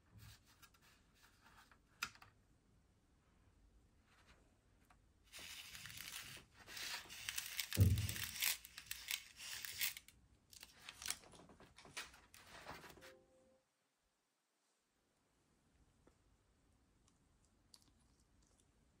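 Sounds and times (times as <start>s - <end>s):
candy toppings pouring: 5.3s - 10.1s
foil sachet tearing and crinkling: 5.3s - 11.2s.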